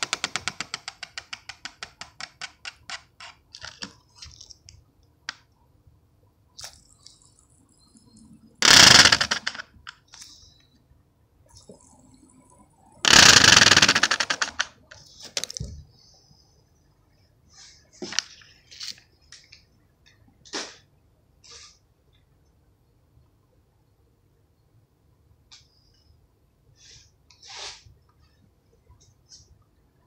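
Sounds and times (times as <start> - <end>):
fidget spinner clicking: 6.6 - 10.2, 13.0 - 15.0.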